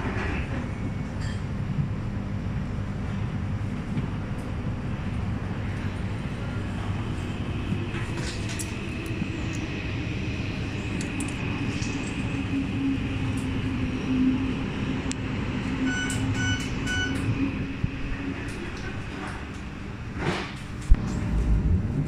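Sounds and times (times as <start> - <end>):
metro train rumbling: 0.0 - 22.0
short beeps: 15.8 - 17.3.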